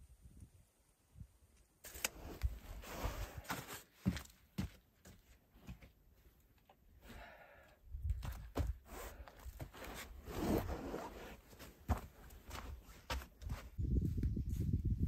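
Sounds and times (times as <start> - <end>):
rustling and scraping: 8.6 - 13.7.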